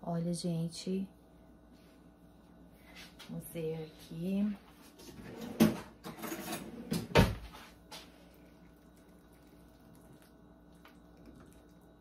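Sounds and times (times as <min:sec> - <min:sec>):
kitchen knocks and clatter: 0:05.0 - 0:07.6.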